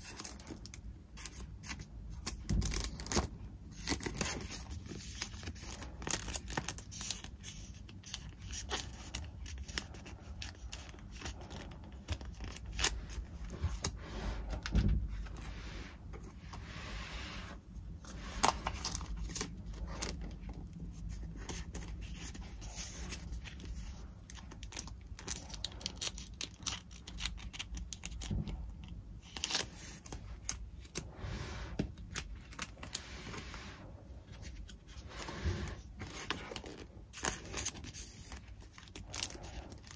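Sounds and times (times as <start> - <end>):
paper rustling and tearing: 0.0 - 15.5, 34.3 - 39.9.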